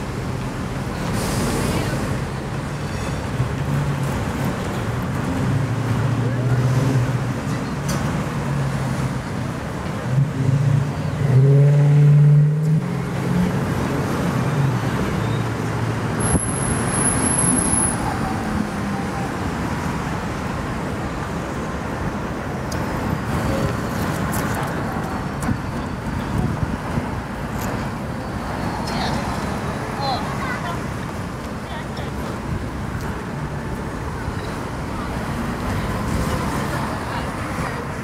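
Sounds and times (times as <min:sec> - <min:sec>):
street traffic passing cars: 0:00.0 - 0:38.0.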